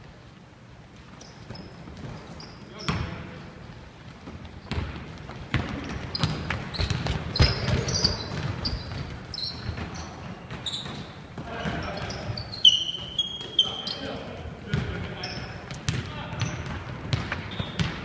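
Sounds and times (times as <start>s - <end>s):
sneaker squeaks: 1.0s - 3.4s, 4.4s - 18.0s
basketball bouncing on hardwood: 4.7s - 12.0s, 14.7s - 15.0s, 15.7s - 18.0s.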